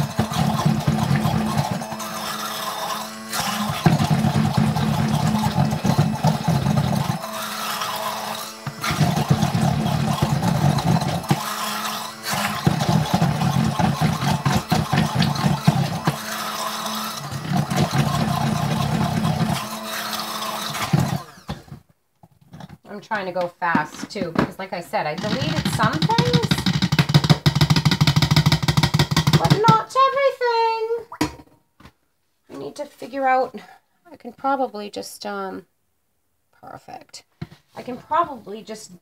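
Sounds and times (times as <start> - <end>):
stick blender churning batter: 0.0 - 21.8, 22.5 - 30.3.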